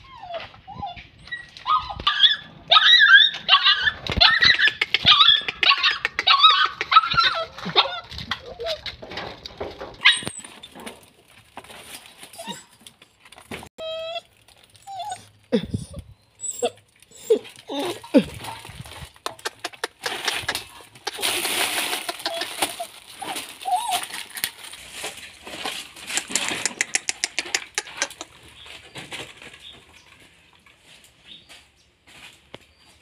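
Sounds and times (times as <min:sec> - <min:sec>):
puppy whimpering: 0:00.0 - 0:08.9, 0:12.4 - 0:12.7, 0:13.8 - 0:18.4, 0:19.3 - 0:24.5
paper and plastic rustling: 0:07.4 - 0:15.5, 0:16.8 - 0:26.7, 0:28.0 - 0:31.2.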